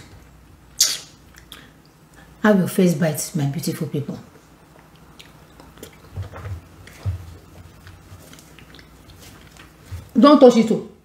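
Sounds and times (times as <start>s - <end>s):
soft chewing: 1.2s - 2.4s, 4.2s - 10.2s.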